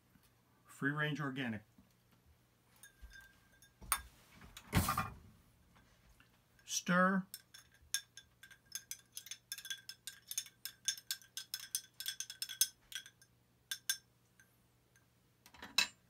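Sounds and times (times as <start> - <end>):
spoon and ice clinking in glass: 2.7 - 4.1, 7.3 - 14.5.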